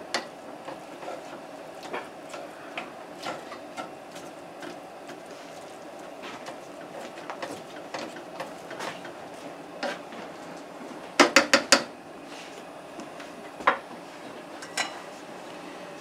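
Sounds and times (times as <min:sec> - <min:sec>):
spatula scraping food in skillet: 0:00.2 - 0:10.1.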